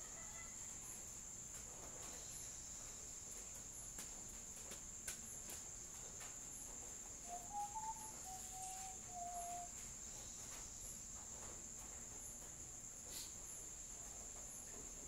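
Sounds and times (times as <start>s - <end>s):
crickets trilling: 0.0s - 15.0s
whistled note: 7.3s - 9.7s.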